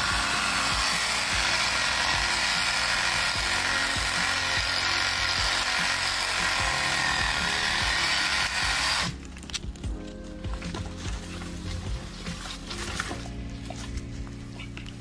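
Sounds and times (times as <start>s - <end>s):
chainsaw running: 0.0s - 9.3s.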